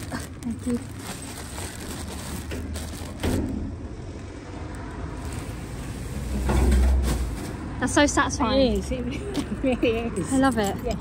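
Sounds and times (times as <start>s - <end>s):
road traffic rumbling: 0.0s - 11.0s
vehicle passing close: 0.9s - 8.9s.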